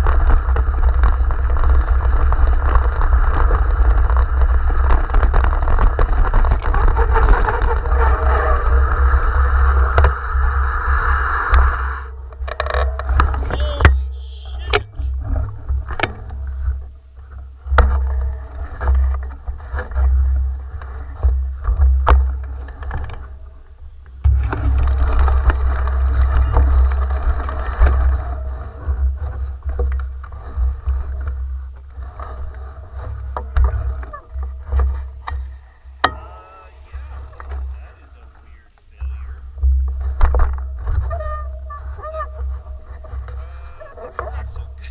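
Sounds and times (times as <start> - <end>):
bike knocking and rattling: 0.0 - 8.5, 15.4 - 37.8.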